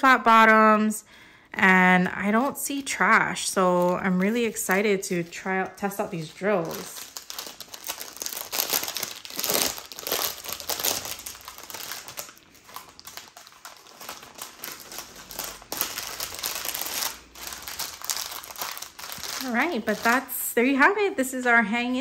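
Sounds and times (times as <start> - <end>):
plastic bags crinkling: 2.2 - 20.8.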